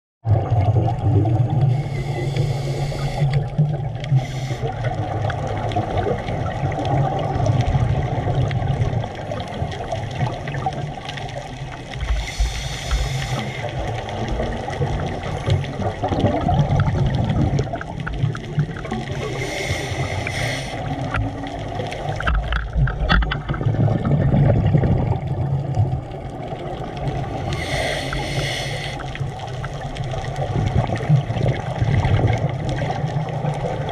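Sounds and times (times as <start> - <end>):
bubbling exhale: 0.3 - 8.2, 12.0 - 22.5, 27.1 - 29.5
regulator hissing inhale: 1.7 - 5.0, 12.1 - 14.0, 19.1 - 21.2, 27.4 - 29.3.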